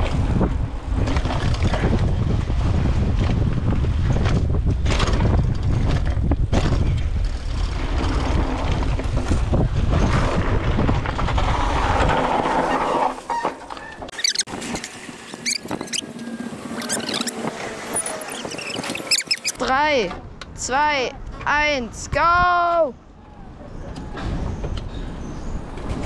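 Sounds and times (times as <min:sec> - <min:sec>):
bike knocks and rattles: 0:00.0 - 0:12.2
wind buffeting microphone: 0:00.0 - 0:12.8, 0:14.0 - 0:26.0.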